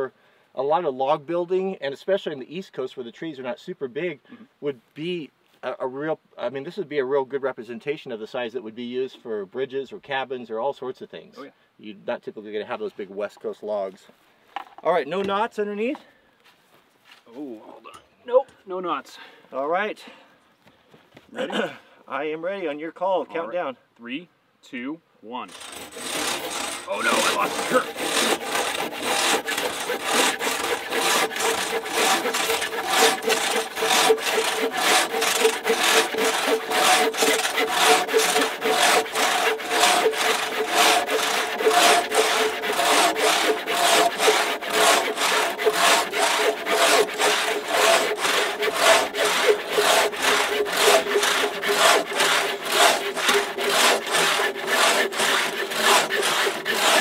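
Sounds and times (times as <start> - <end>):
saws cutting log: 25.5 - 57.0.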